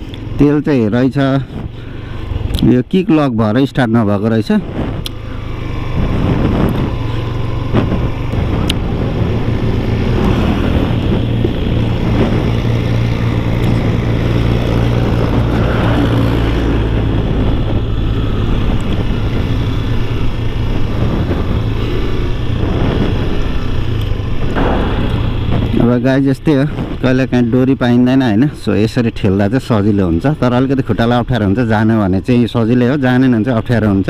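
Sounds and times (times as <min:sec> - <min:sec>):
motorcycle engine running: 0:00.0 - 0:34.0
wind noise on microphone: 0:04.5 - 0:28.1.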